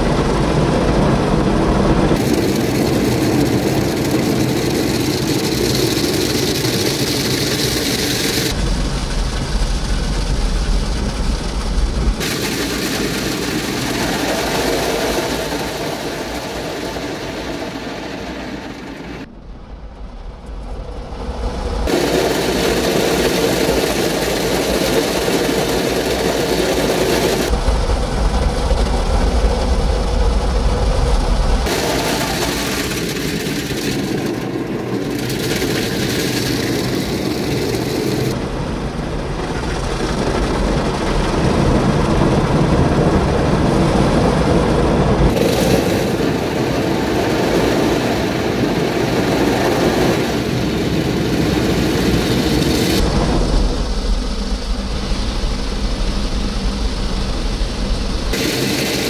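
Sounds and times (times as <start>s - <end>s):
car wash machinery whirring: 0.0s - 59.0s.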